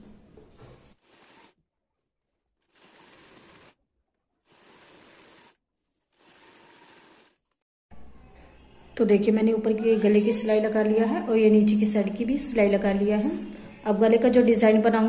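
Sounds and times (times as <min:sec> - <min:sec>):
sewing machine stitching: 0:00.7 - 0:01.6, 0:02.6 - 0:07.6.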